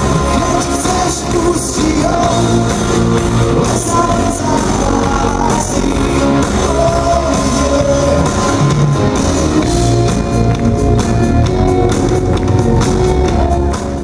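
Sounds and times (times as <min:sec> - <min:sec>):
bass guitar: 0:00.0 - 0:14.0
drums: 0:00.0 - 0:14.0
electric guitars: 0:00.0 - 0:14.0.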